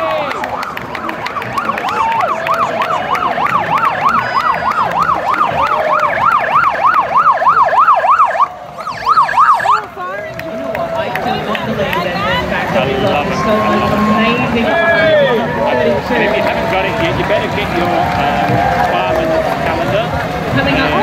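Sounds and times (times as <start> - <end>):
emergency siren yelping: 0.0 - 10.2.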